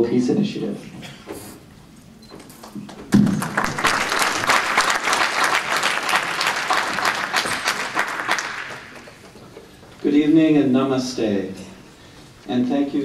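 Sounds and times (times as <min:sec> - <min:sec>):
audience applauding: 0:02.5 - 0:09.7.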